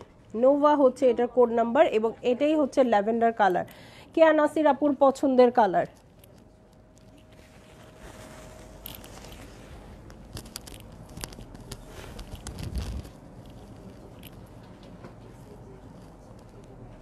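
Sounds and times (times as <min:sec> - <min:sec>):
cloth rustling on lapel microphone: 0:06.0 - 0:17.0.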